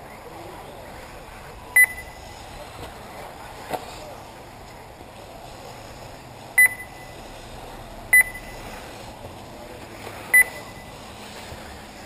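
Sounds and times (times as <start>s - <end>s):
short high electronic beeps: 1.8s - 2.2s, 6.6s - 7.2s, 8.1s - 8.7s, 10.3s - 11.0s.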